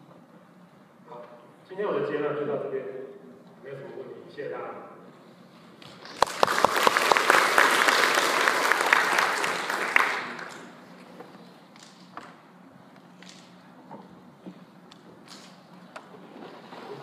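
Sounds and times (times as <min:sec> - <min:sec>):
audience applauding: 0:06.0 - 0:10.9.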